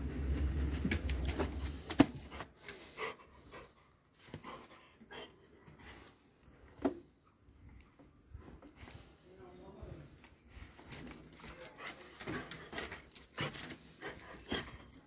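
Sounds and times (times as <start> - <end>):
dog panting: 1.3 - 6.2, 11.2 - 15.0.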